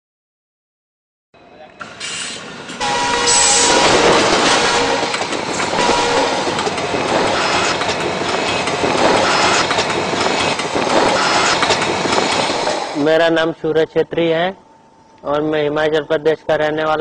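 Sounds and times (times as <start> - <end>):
passenger train passing: 1.4 - 13.6
held tones: 2.8 - 11.8.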